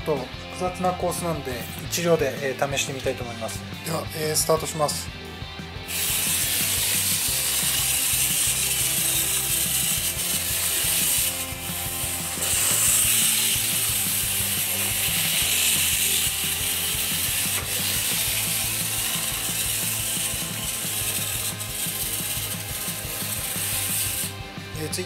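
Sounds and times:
toy train gears whirring: 5.9s - 24.4s.

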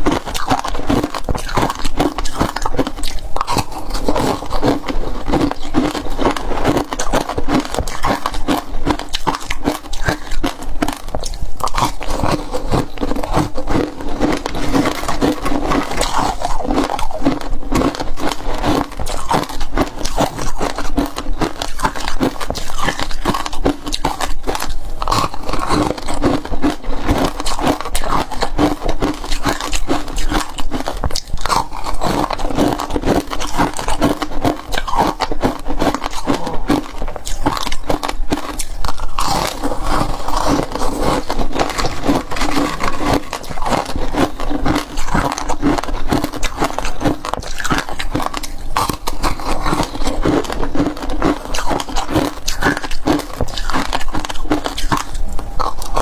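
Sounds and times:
ice being chewed: 0.0s - 56.0s
ice scraping glass bowl: 25.2s - 56.0s.

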